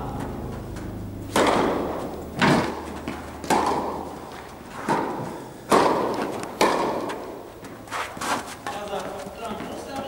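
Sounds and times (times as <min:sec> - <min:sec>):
tennis ball bouncing on court: 0:00.0 - 0:07.8
tennis ball hit by racket: 0:00.0 - 0:08.8.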